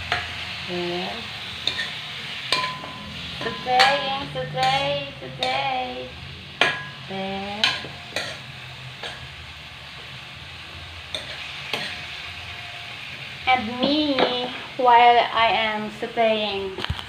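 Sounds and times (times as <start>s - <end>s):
food sizzling in a frying pan: 0.0s - 17.0s
spatula knocking and scraping pan: 1.6s - 5.8s, 6.6s - 9.3s, 11.1s - 12.0s.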